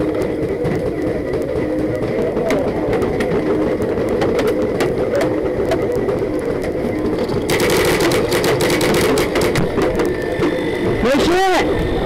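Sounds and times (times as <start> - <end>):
steady hum: 0.0 - 12.0
paintball markers firing: 7.3 - 10.1.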